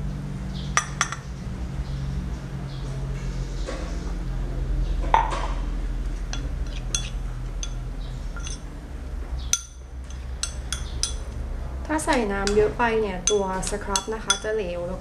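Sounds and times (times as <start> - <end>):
metal spoon clinking against bowl: 6.3 - 8.6, 9.5 - 11.4, 12.4 - 14.6.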